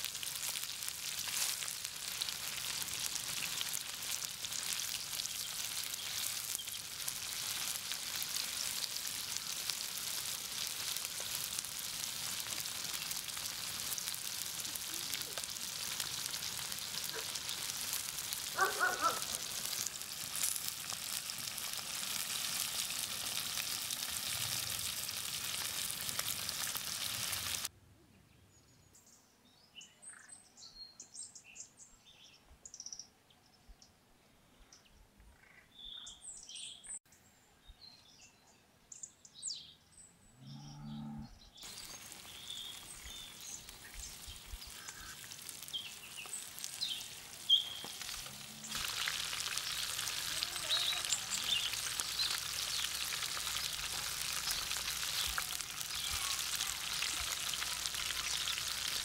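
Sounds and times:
fish sizzling in hot oil: 0.0 - 27.7, 41.6 - 59.0
faint bird chirps: 34.6 - 46.4.

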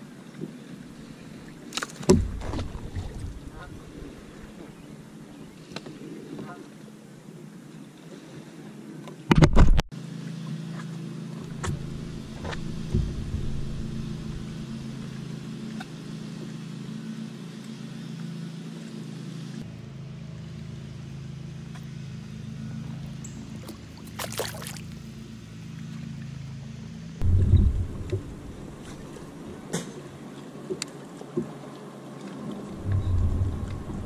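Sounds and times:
water splashing: 0.4 - 5.5, 11.4 - 16.4, 23.4 - 26.2, 27.2 - 34.0
electric trolling motor humming: 10.1 - 34.0.

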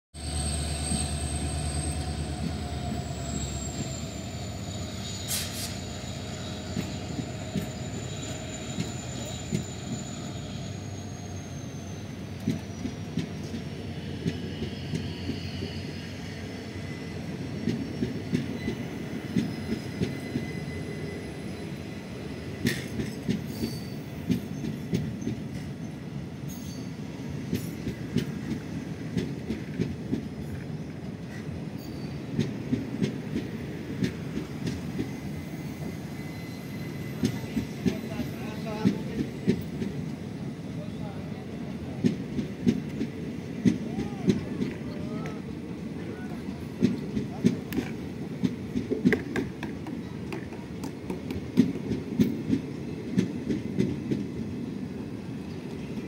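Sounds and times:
thin wheel squeal: 0.2 - 12.1, 35.4 - 38.2
train coaches rumbling past: 0.2 - 56.0.

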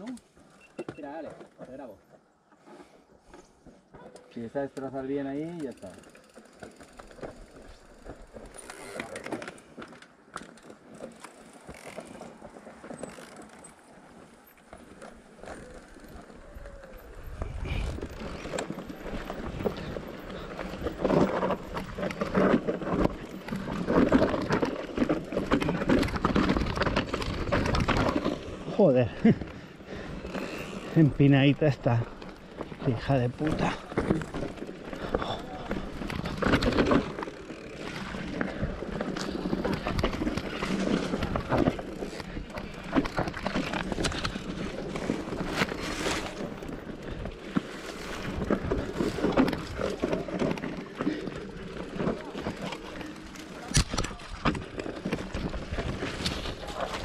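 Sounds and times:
bike rattling on rough trail: 0.0 - 57.0
tyres on dirt and stones: 0.0 - 57.0
bike frame clicks and knocks: 3.3 - 28.6.

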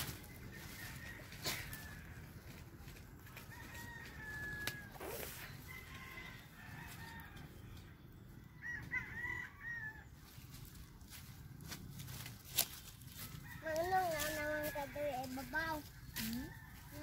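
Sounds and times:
rooster crowing: 0.2 - 2.6, 3.2 - 7.8, 8.5 - 10.1.

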